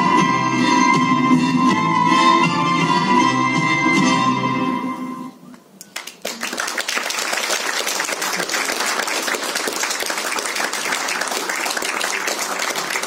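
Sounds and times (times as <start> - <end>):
music: 0.0 - 5.5
audience applauding: 5.9 - 13.0.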